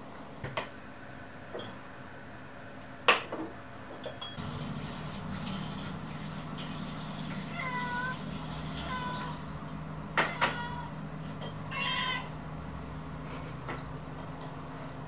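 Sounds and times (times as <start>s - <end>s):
cat meowing: 7.4s - 9.5s, 10.2s - 11.0s, 11.6s - 12.4s.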